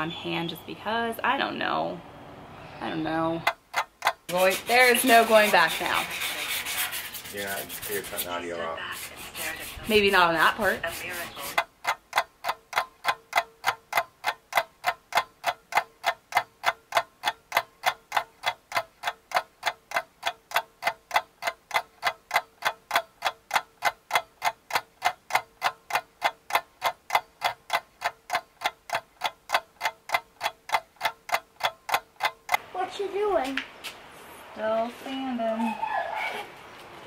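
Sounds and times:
clock ticking: 3.0 - 6.6, 9.6 - 33.3.

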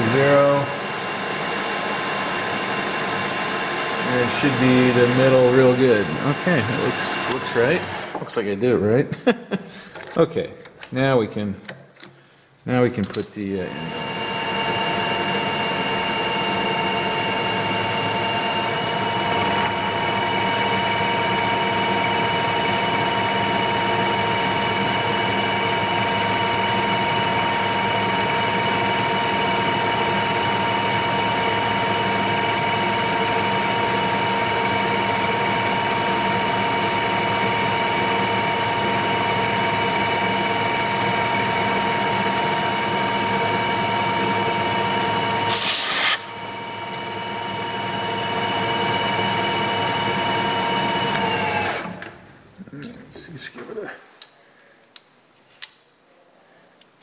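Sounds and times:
milling machine whine: 0.0 - 8.2, 13.6 - 52.1
metal cutting noise: 3.0 - 8.2, 13.6 - 47.7
short loud hiss burst: 45.5 - 46.3.

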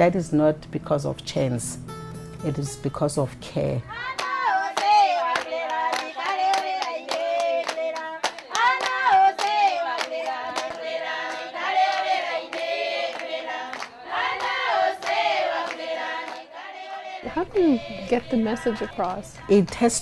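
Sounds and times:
women singing together: 3.9 - 20.0
hand claps: 4.1 - 16.5.

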